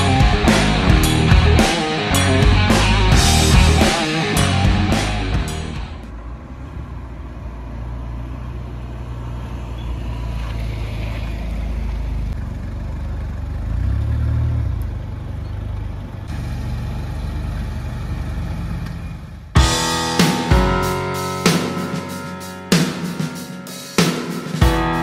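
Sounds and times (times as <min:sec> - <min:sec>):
car engine running: 0:00.0 - 0:06.8.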